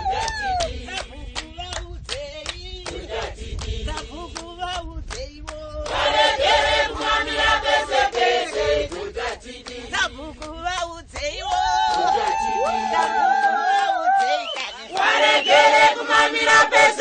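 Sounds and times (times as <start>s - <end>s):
group singing: 0.0s - 4.8s, 5.8s - 10.8s, 12.0s - 17.0s
hand clapping: 0.2s - 6.0s, 9.6s - 15.2s.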